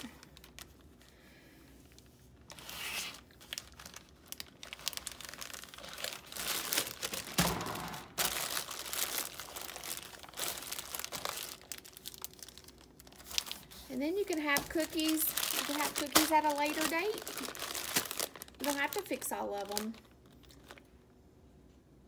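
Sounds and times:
plastic bag crinkling: 0.0 - 1.2, 1.8 - 21.0
thump: 7.4 - 8.1.

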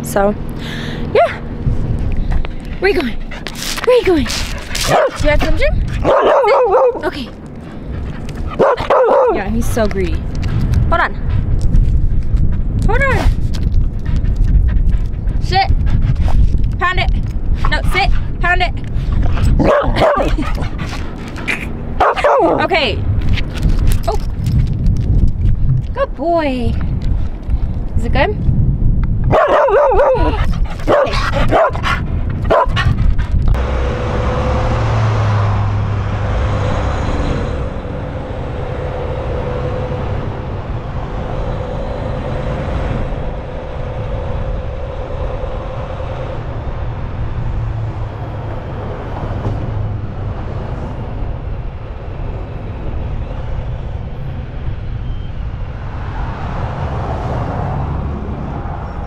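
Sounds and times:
road noise: 0.0 - 59.0
truck engine rumble: 0.0 - 59.0
dog calling: 4.3 - 7.1, 8.1 - 9.4, 19.6 - 22.6, 29.3 - 33.0.

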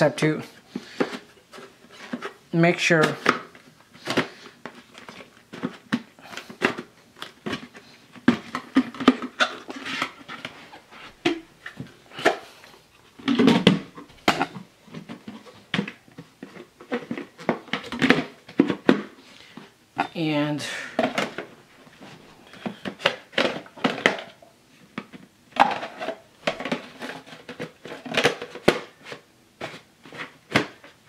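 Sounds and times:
plastic parts clicking and knocking: 3.0 - 10.6, 13.2 - 19.7, 20.9 - 21.6, 22.5 - 31.0.

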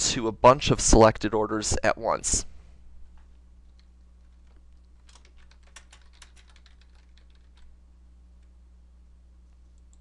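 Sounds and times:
steady low hum: 0.0 - 10.0
typing on computer keyboard: 3.7 - 7.7.

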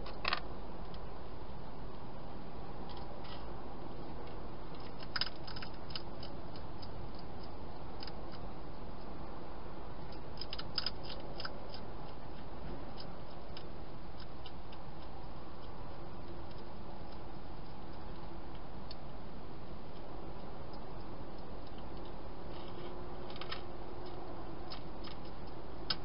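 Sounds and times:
steady background hiss: 0.0 - 26.0
hedgehog crunching dry food: 4.2 - 9.1, 10.0 - 19.0, 19.9 - 26.0.

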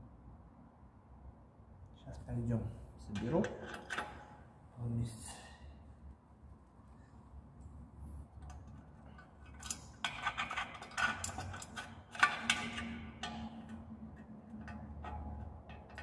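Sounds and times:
small metal parts clinking: 8.5 - 13.8.

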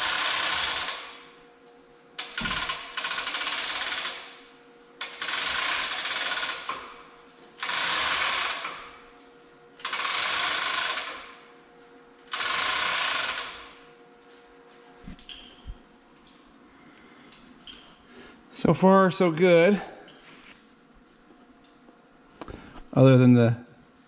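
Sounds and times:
chain hoist rattling: 0.0 - 1.3, 2.2 - 4.4, 5.0 - 6.9, 7.6 - 9.0, 9.8 - 11.4, 12.3 - 13.8.

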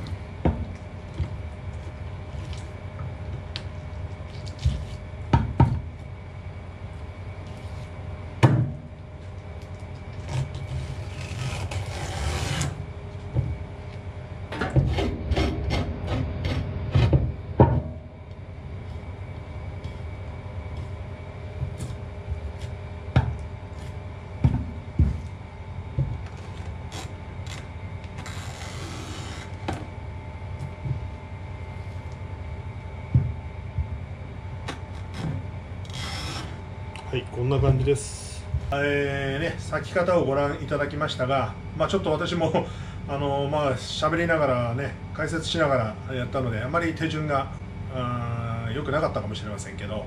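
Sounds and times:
faint steady hum: 0.0 - 50.0
knife scraping: 14.8 - 17.1.

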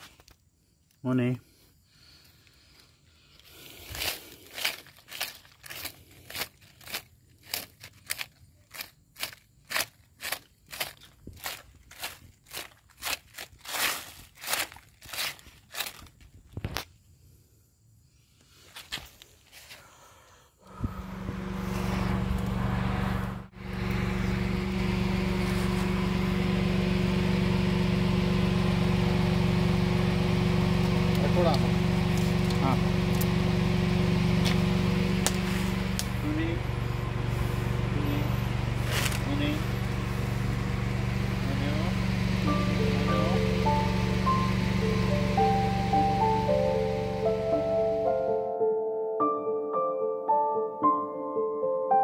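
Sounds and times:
vehicle engine running: 20.6 - 48.4.

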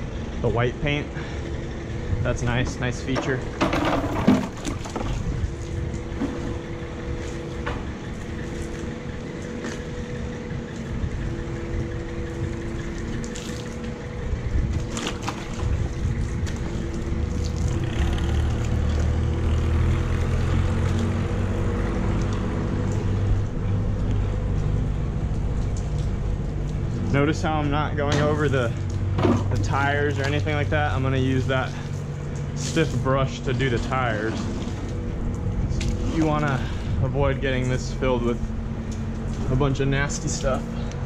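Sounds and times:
machine hum: 0.0 - 41.0
splashes and knocks: 3.1 - 10.0, 12.7 - 14.1, 14.7 - 21.5, 28.0 - 30.7.

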